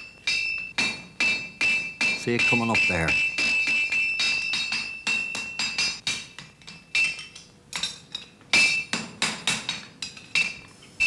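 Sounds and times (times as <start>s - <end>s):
hammer ringing on anvil: 0.0s - 7.3s.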